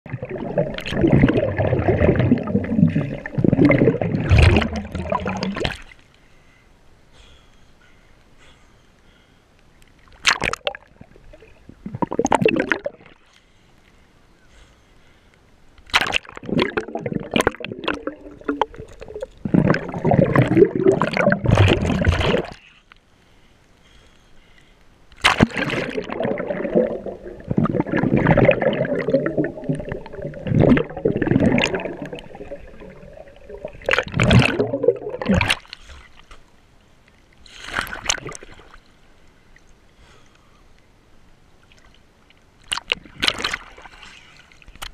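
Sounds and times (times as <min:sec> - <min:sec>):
water bubbling and sloshing: 0:00.0 - 0:06.1, 0:09.9 - 0:13.3, 0:15.8 - 0:22.7, 0:25.1 - 0:36.5, 0:37.1 - 0:39.7, 0:41.6 - 0:44.9
water splashing: 0:00.1 - 0:06.1, 0:10.0 - 0:13.3, 0:15.8 - 0:22.7, 0:25.2 - 0:36.3, 0:37.6 - 0:39.0, 0:42.6 - 0:44.9.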